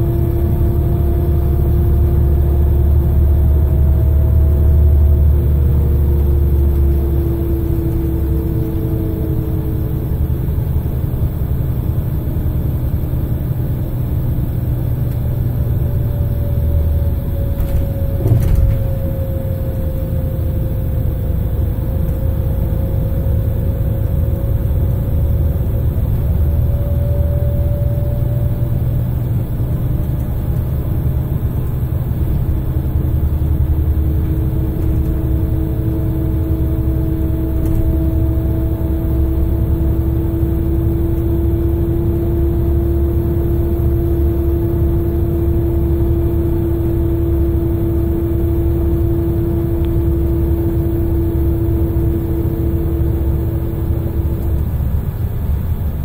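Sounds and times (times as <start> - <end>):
bus diesel engine rumble: 0.0 - 56.0
automatic gearbox whine: 17.2 - 20.1.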